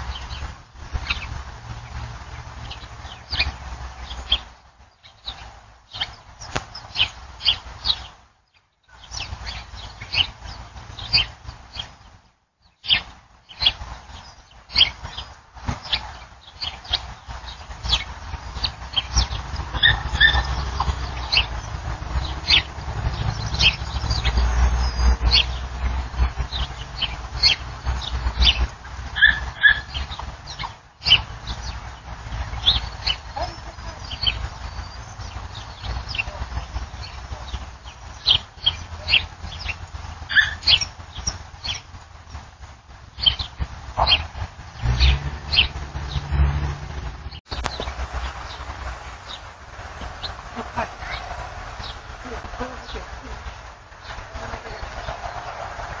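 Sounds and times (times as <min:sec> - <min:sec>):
high bird chirps: 0:12.8 - 0:41.9.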